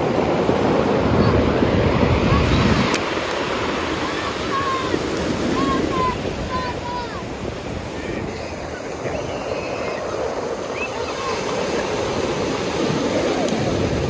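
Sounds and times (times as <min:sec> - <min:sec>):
waves breaking on pebble beach: 0:00.0 - 0:14.0.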